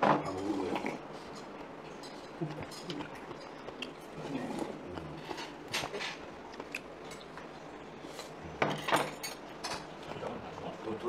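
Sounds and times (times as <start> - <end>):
chewing: 0.4 - 8.6.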